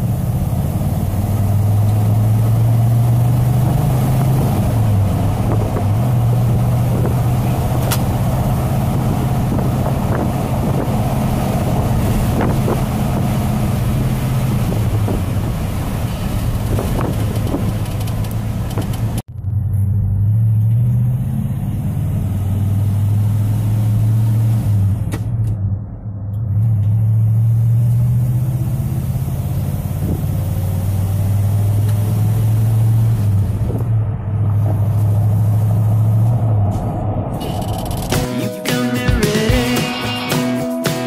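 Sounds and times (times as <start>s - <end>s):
truck engine drone from inside cab: 0.0s - 40.3s.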